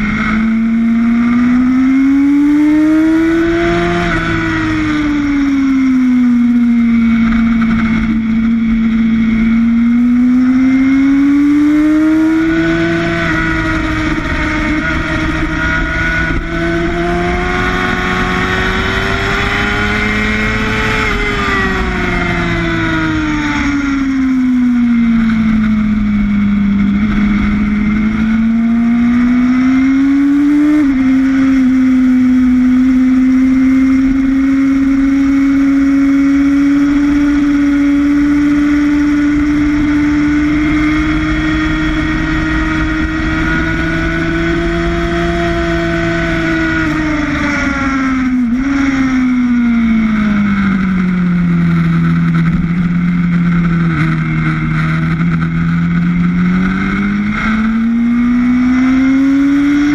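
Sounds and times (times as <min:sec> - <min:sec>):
wind rush: 0:00.0 - 0:33.1
motorcycle engine at speed: 0:00.0 - 0:59.9.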